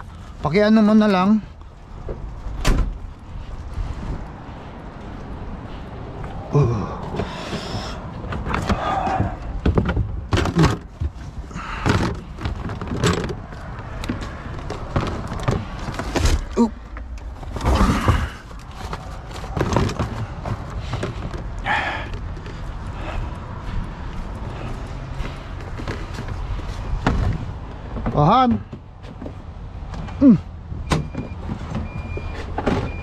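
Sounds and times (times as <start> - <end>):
plastic bins bumping and scraping: 7.1 - 22.6, 25.6 - 29.4.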